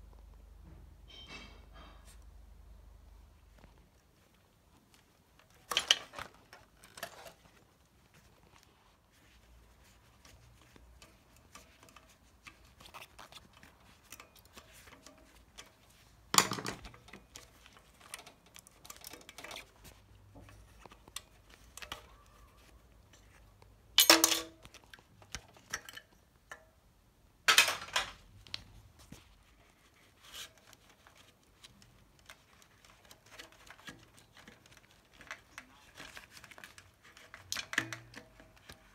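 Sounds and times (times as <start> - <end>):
faint rustling: 3.1 - 24.0
clicks and clinks of parts handled: 9.2 - 26.8, 27.5 - 29.2, 30.4 - 38.9.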